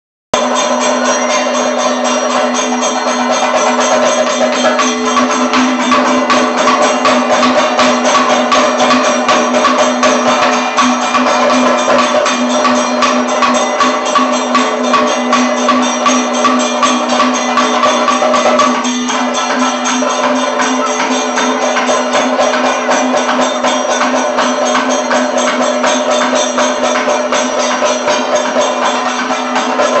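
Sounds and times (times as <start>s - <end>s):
fast drumming: 0.3s - 30.0s
hand cymbals: 0.4s - 30.0s.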